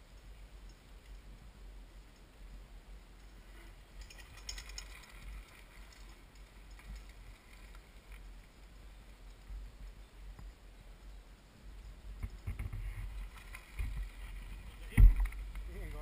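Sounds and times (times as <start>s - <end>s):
bike rolling on stony trail: 3.2s - 10.0s, 12.2s - 16.0s.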